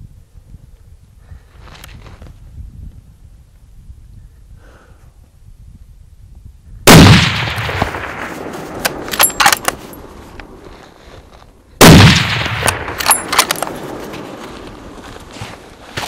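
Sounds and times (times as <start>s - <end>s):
rifle shots echoing: 6.9s - 10.2s, 11.8s - 14.3s
metallic clicks: 12.6s - 13.8s.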